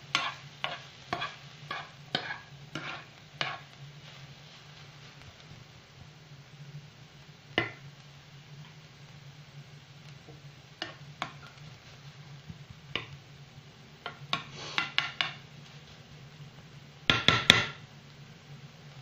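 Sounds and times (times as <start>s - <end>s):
spoon scraping frying pan: 0.0s - 5.3s, 7.5s - 7.8s, 10.2s - 13.2s, 14.0s - 16.0s.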